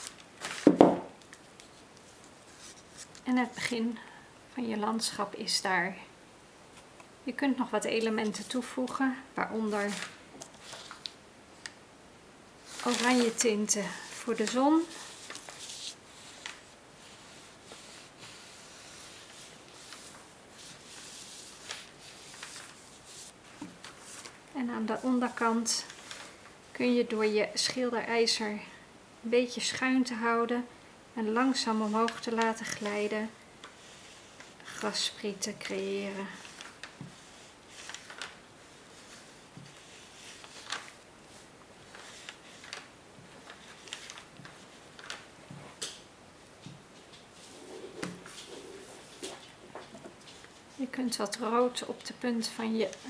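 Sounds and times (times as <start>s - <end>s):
painting iron rubbing on wax: 12.6s - 23.4s.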